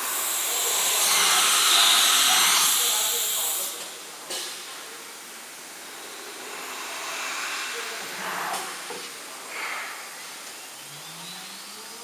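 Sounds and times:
short air blasts: 0.0 - 4.6
compressed air hissing: 0.0 - 10.5
faint rising whine: 4.9 - 12.0.

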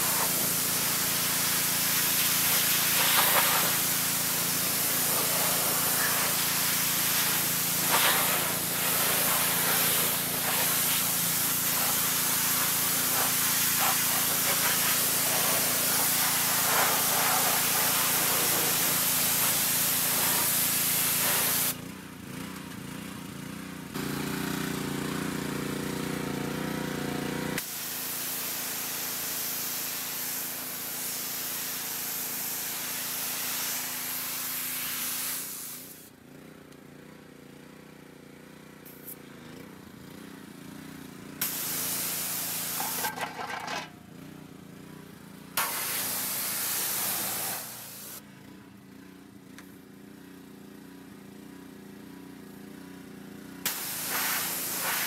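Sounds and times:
pressure washer spraying: 0.0 - 21.8, 27.6 - 36.1, 41.4 - 43.9, 45.6 - 48.2, 53.7 - 55.0.

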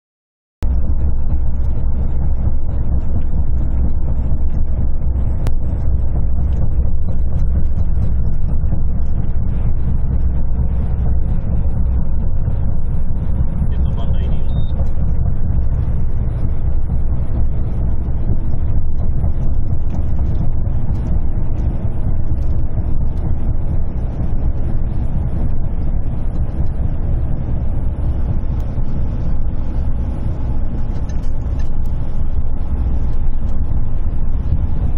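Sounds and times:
truck cab rumble: 0.6 - 34.9
wheels beating over road joints: 0.6 - 34.9.

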